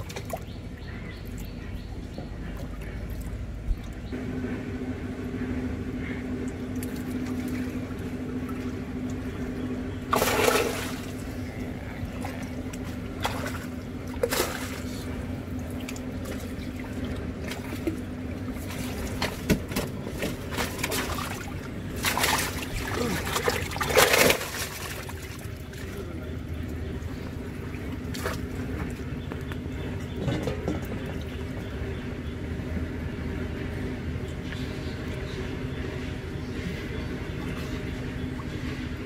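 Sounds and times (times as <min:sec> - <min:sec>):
steady low hum: 0:00.0 - 0:39.0
fish thrashing in water: 0:06.7 - 0:26.1, 0:27.4 - 0:31.6
water splashing: 0:06.7 - 0:26.3.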